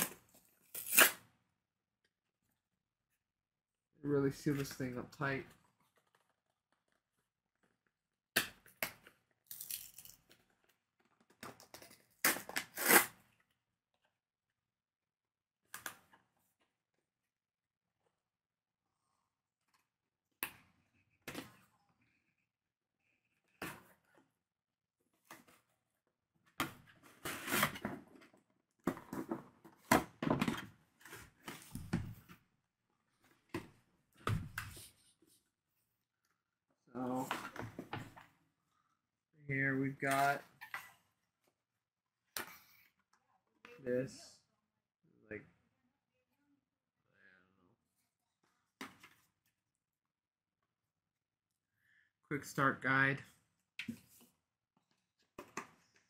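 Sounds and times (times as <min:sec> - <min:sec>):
packaging being torn open: 0:00.7 - 0:01.2.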